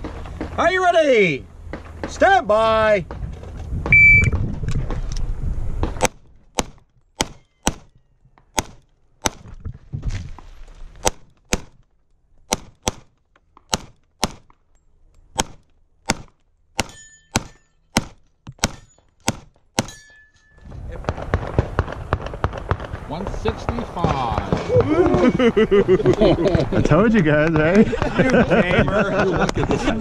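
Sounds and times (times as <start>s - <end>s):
pistol shots: 15.4s - 20.0s, 21.0s - 25.2s.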